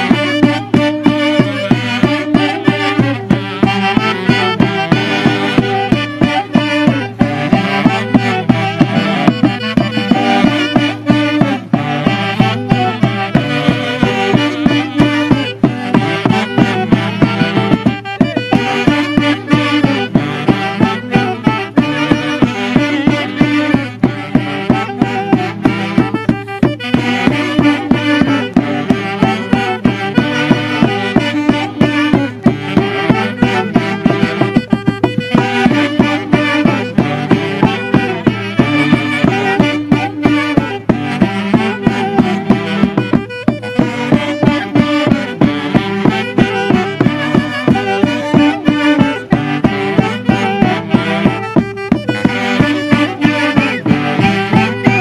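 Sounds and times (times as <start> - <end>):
saxophones playing melody: 0.0 - 55.0
steady drumbeat: 0.0 - 55.0.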